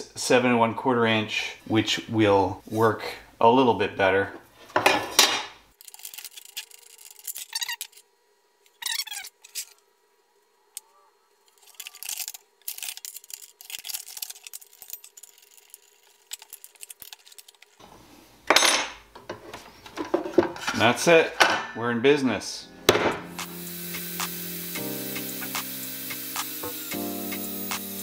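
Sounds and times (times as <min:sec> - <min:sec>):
metal parts clinking and rattling: 0:05.8 - 0:08.0, 0:11.5 - 0:17.8.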